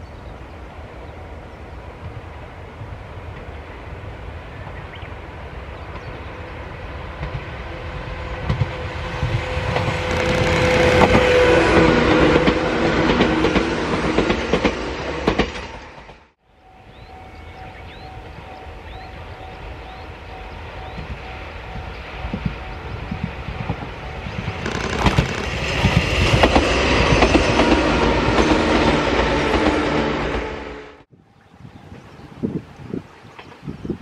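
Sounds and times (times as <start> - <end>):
electric train passing: 0.2 - 31.1
wheels clacking over rail joints: 8.3 - 16.2, 23.6 - 29.9.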